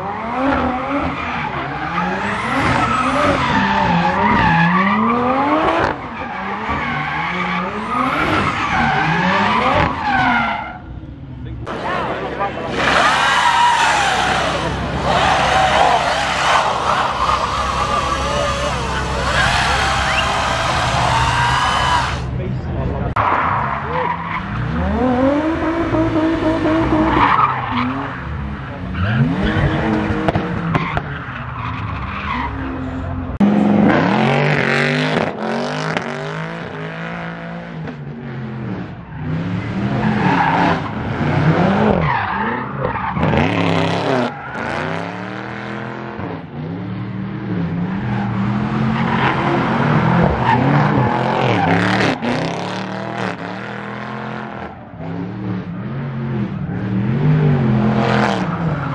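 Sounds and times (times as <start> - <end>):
car engines revving: 0.0 - 58.9
tyres squealing on tarmac: 0.6 - 10.9, 11.7 - 22.4.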